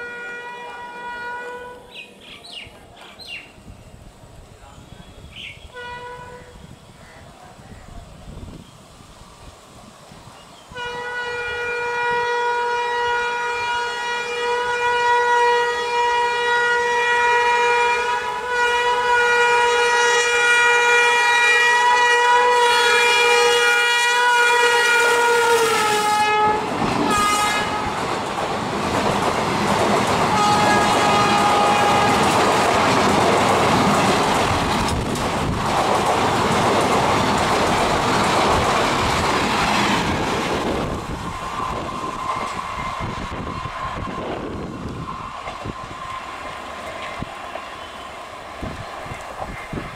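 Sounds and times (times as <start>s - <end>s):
locomotive horn: 0.0s - 2.0s, 5.0s - 7.1s, 10.7s - 28.2s, 30.2s - 32.7s
train wheels clattering over rail joints: 26.7s - 42.9s.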